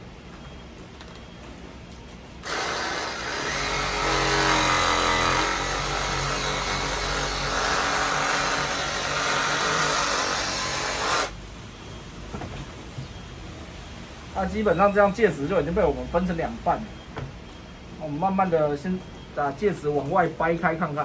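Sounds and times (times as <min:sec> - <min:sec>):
reciprocating saw cutting roots: 0:02.4 - 0:11.4.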